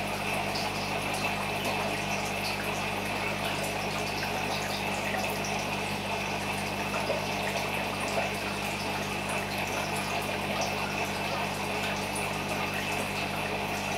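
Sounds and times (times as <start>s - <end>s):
low electrical hum: 0.0s - 13.9s
water trickling and bubbling: 0.0s - 13.9s.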